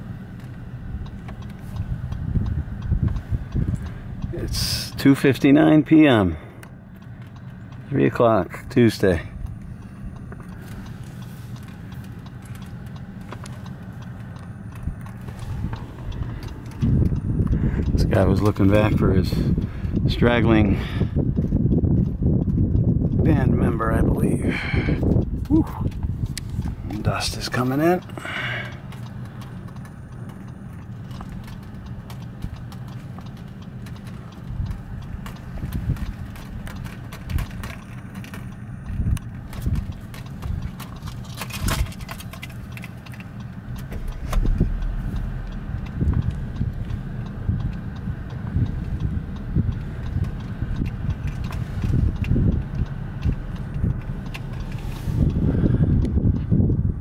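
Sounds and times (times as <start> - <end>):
car engine idling hum: 0.0 - 57.0
hooves clopping on dry ground: 28.9 - 55.5.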